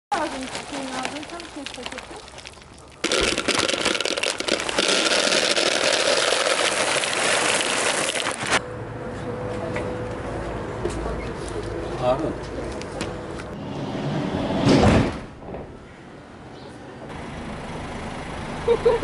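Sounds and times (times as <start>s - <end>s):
dry kibble pouring into plastic bucket: 0.2s - 8.6s.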